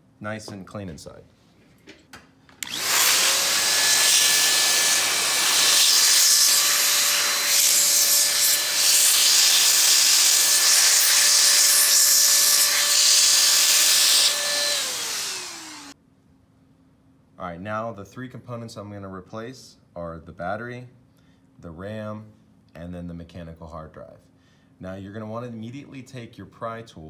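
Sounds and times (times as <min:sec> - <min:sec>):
electric air duster whining: 0:02.6 - 0:16.0.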